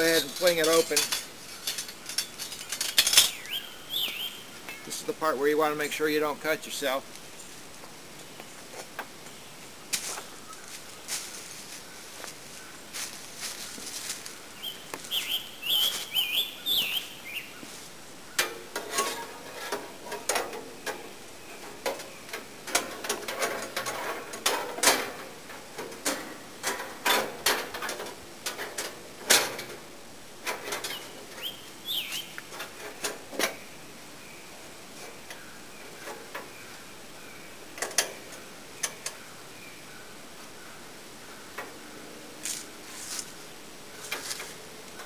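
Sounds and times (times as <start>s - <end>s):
bird chirping: 0.0s - 5.2s, 8.2s - 18.5s, 30.7s - 42.1s.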